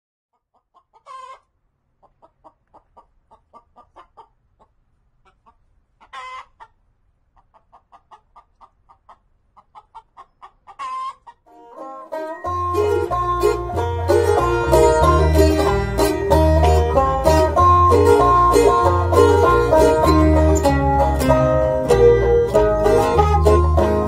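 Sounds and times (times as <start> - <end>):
chickens clucking: 0.3 - 24.0
plucked banjo and guitar music: 11.5 - 24.0.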